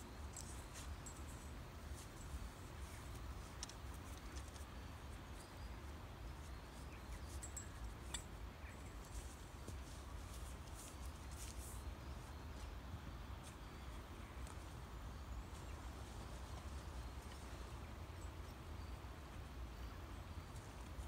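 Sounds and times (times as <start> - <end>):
faint high bird chirps: 2.2 - 10.0.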